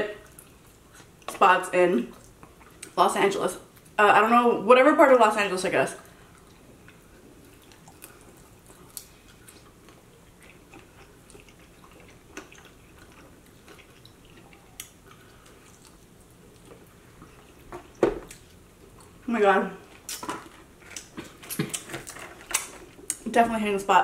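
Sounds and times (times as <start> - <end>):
chewing and biting: 6.3 - 19.2.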